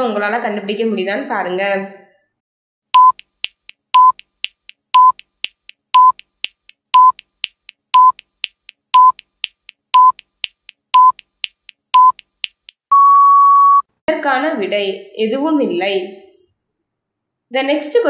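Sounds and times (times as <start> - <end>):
countdown timer beeps: 3.0 - 13.9.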